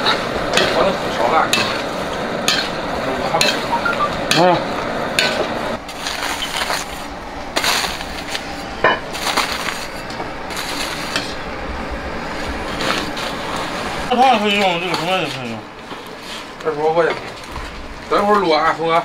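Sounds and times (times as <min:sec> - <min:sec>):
shrimp sizzling: 0:00.0 - 0:03.7, 0:04.3 - 0:15.4
metal spatula scraping salt: 0:07.6 - 0:08.1.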